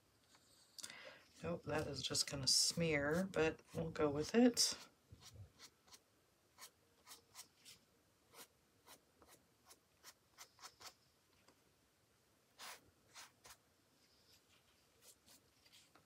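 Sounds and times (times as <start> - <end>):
bristle brush scrubbing paper: 1.4 - 6.0, 12.6 - 13.6, 14.3 - 16.0.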